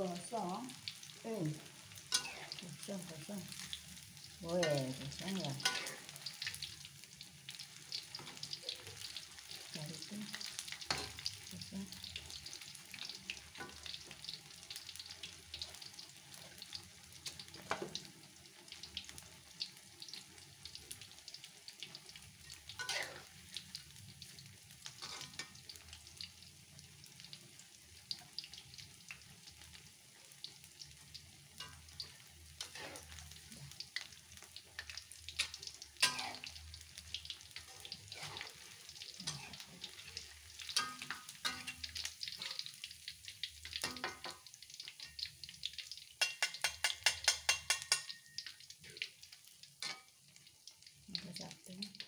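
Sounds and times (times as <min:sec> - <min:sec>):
fritters sizzling in oil: 0:00.0 - 0:52.0
metal spatula scraping wok: 0:02.0 - 0:03.0, 0:04.6 - 0:06.6, 0:10.7 - 0:11.3, 0:22.5 - 0:23.4, 0:24.8 - 0:25.9, 0:31.6 - 0:33.7, 0:34.8 - 0:36.6, 0:37.6 - 0:42.7.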